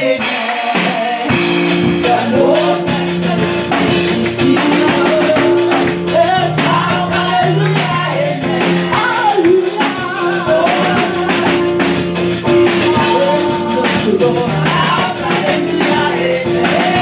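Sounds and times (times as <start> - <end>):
steady percussion beat: 0.0 - 17.0
woman singing: 0.0 - 17.0
held chords: 1.3 - 17.0.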